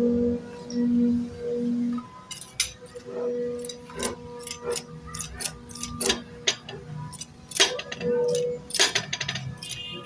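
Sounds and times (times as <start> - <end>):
steady low hum: 0.0 - 9.3
sharp metallic clicks and taps: 3.6 - 9.9.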